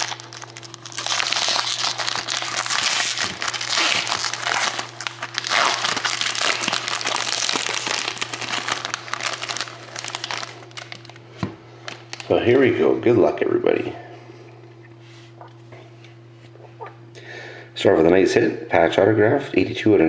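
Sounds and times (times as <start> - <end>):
foil wrapper tearing and crinkling: 0.0 - 11.2, 11.9 - 12.3
steady low hum: 0.0 - 20.0.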